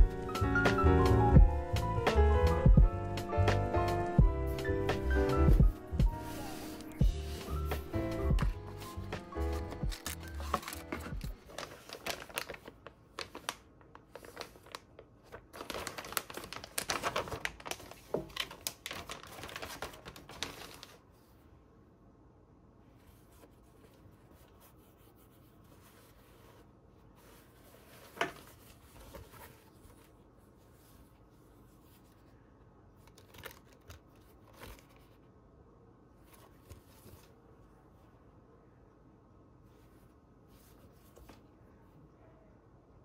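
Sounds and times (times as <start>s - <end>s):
packaging crinkling and tearing: 9.5s - 21.0s, 33.0s - 34.9s.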